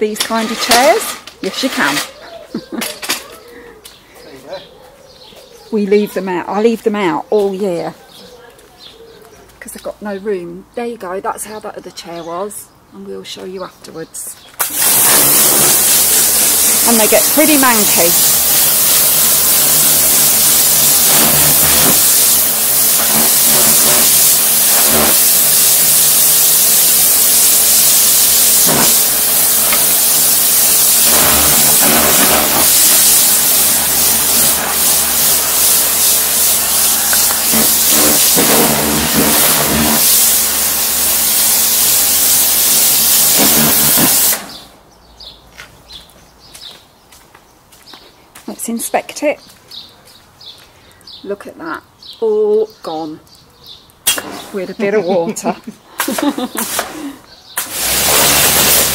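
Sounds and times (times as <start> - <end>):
water jet spraying onto slabs: 0.1 - 2.1, 14.6 - 44.7, 54.0 - 58.9
pressure washer pump humming: 14.6 - 44.6, 56.2 - 58.9.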